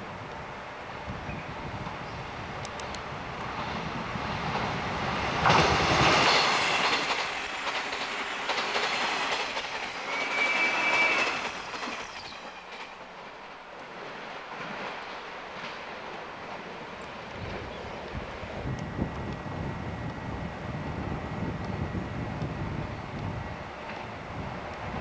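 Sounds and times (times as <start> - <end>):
electric train passing at speed: 0.0 - 25.0
train wheels on rails: 0.0 - 25.0
brief high squeal: 9.8 - 13.5.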